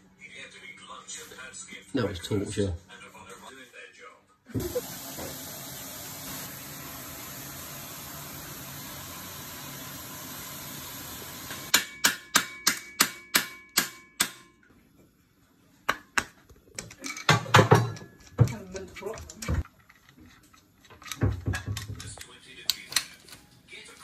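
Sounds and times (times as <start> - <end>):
sharp metal-on-metal knocks: 11.7 - 14.6.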